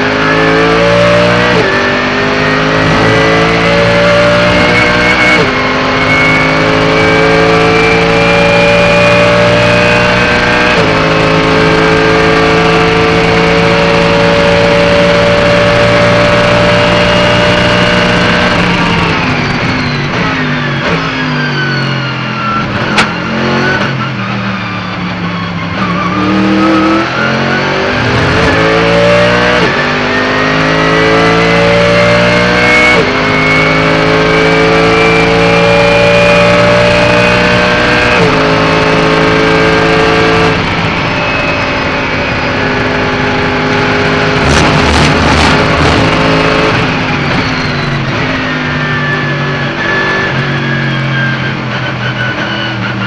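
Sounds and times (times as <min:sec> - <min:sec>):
race car engine accelerating: 0:00.0 - 0:53.0
sharp click: 0:23.0 - 0:23.2.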